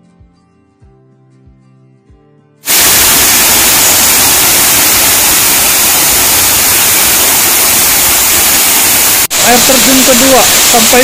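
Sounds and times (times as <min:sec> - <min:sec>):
soft guitar music: 0:00.0 - 0:02.6.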